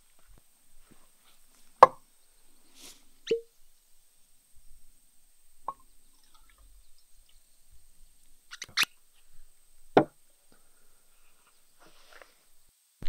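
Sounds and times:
bottle knocking on wood: 10.0s - 10.2s.

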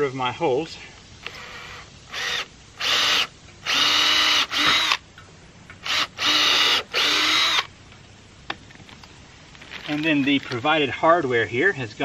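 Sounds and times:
cordless drill whining: 1.2s - 5.0s, 5.8s - 7.7s.

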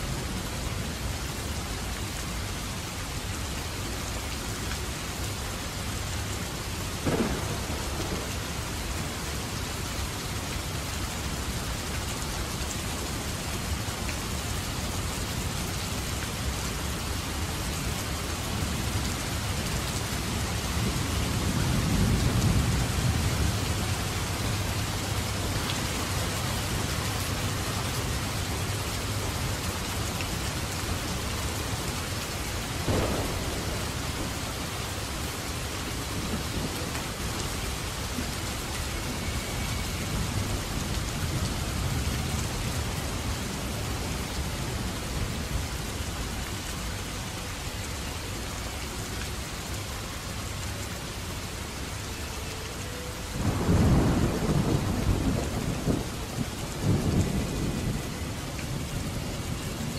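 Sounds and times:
heavy rain pouring: 0.0s - 59.9s
sharp thunder crack: 7.0s - 8.3s, 32.9s - 34.1s
low rumble of thunder: 7.0s - 9.8s, 20.1s - 26.9s, 32.8s - 38.3s, 53.4s - 59.9s.

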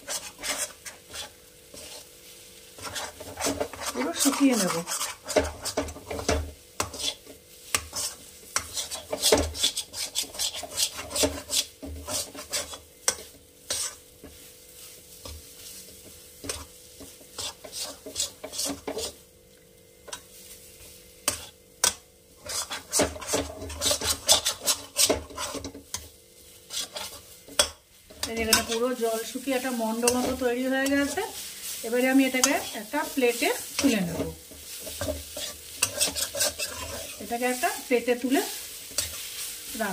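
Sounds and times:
metal spatula scraping metal pan: 0.0s - 2.1s, 2.7s - 14.0s, 15.2s - 19.2s, 21.2s - 39.9s.

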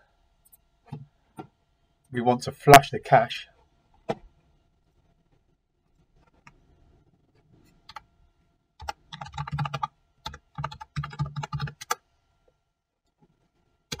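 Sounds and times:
keyboard typing: 8.8s - 12.0s.

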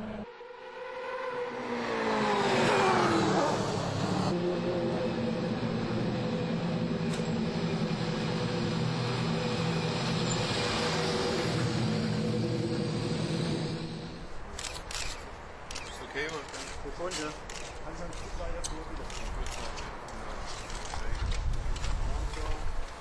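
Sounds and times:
race car engine passing by: 0.0s - 14.3s.

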